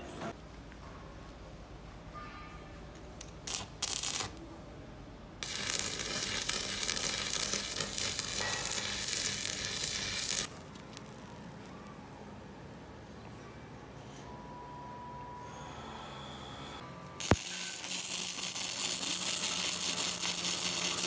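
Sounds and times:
welding arc sizzling: 3.4s - 4.4s, 5.4s - 11.8s, 17.2s - 21.0s.

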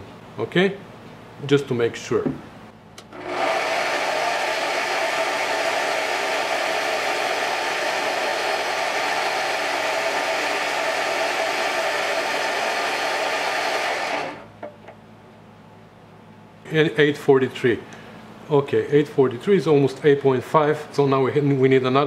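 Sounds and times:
metal lathe whirring: 3.1s - 14.5s.

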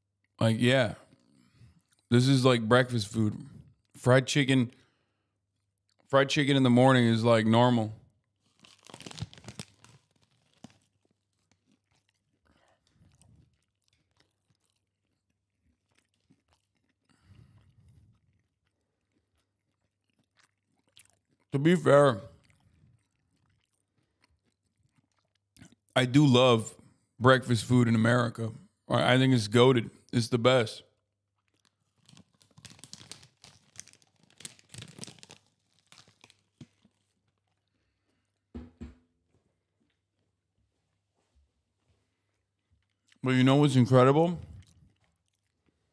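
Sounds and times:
chewing crunchy food: 1.0s - 2.1s, 4.7s - 6.1s, 8.0s - 26.0s, 30.9s - 38.5s, 42.0s - 45.9s.

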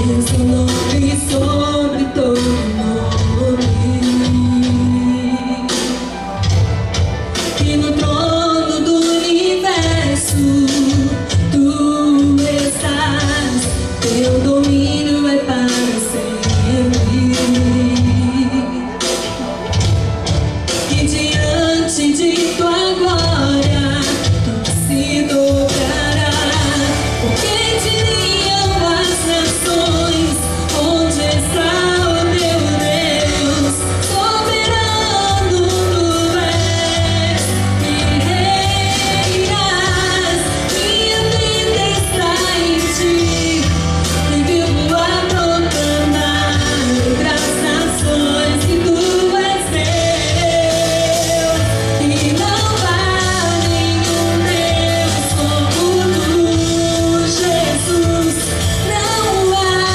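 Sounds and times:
drums: 0.0s - 59.9s
woman singing into microphone: 0.0s - 59.9s
bass notes: 23.0s - 59.9s.

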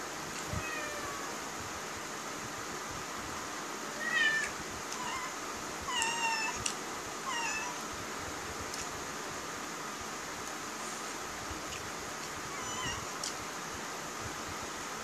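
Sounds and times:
cat meowing: 0.6s - 1.3s, 4.0s - 6.7s, 7.3s - 7.8s, 12.5s - 13.2s.

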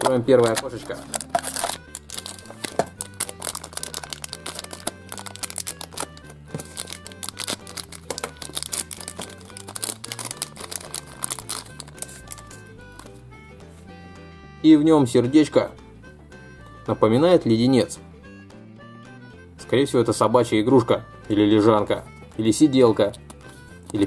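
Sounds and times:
packaging crinkling: 0.0s - 13.1s
background music: 0.0s - 24.0s.

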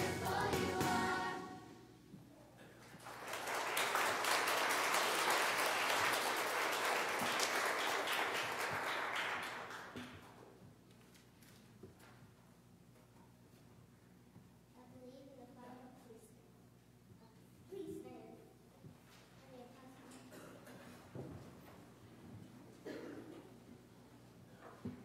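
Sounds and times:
music: 0.0s - 1.9s
congregation applauding: 2.9s - 10.3s.

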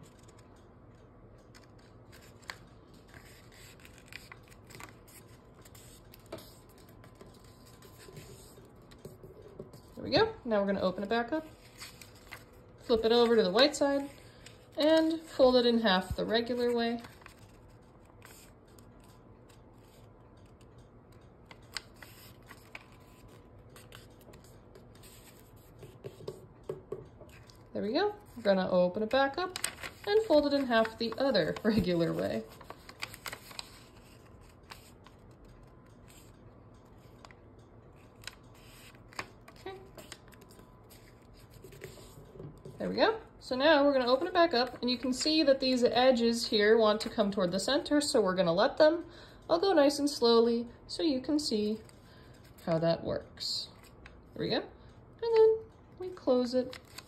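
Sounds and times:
paper crackles: 1.5s - 9.1s, 11.0s - 20.6s, 21.5s - 25.7s, 28.3s - 35.4s, 38.0s - 42.9s, 56.6s - 57.0s
paper rustling and crinkling: 1.5s - 10.2s, 11.5s - 18.9s, 21.5s - 26.0s, 29.5s - 35.4s, 38.0s - 42.8s, 56.7s - 57.0s.

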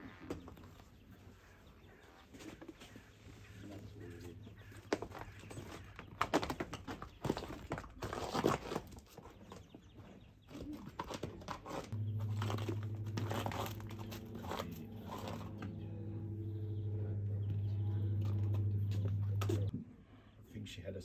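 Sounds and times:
rustling handling noise: 11.0s - 15.8s
low hum with even tones: 12.0s - 20.5s.

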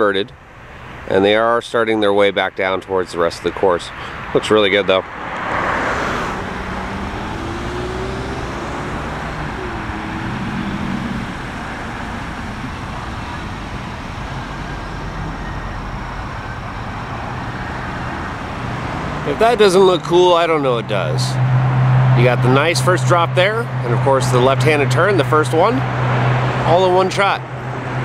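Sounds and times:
hiss of passing vehicles: 3.9s - 4.4s, 5.2s - 16.1s
low engine hum: 5.3s - 19.3s.

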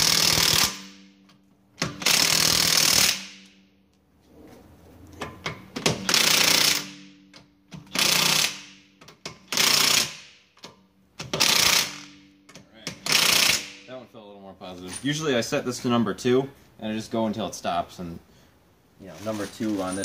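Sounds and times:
impact wrench hammering bolts: 0.0s - 3.7s, 5.2s - 13.9s.

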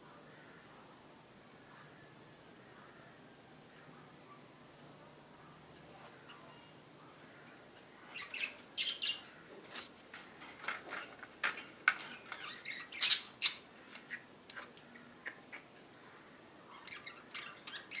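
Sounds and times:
birds squawking and chirping: 6.1s - 18.0s.

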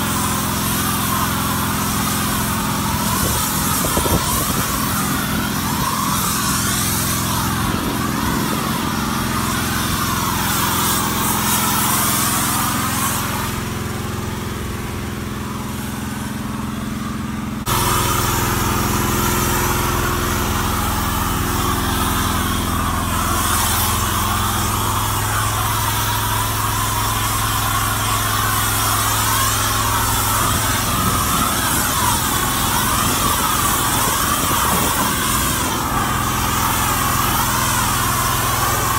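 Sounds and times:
pressure washer engine running: 0.0s - 38.9s
hiss of foam spray: 23.1s - 38.9s.

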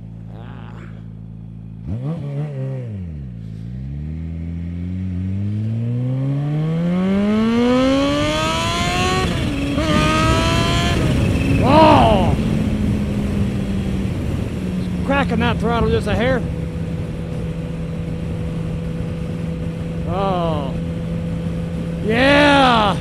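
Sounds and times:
motorcycle engine revving and accelerating: 1.2s - 23.0s
wind noise: 7.3s - 23.0s.

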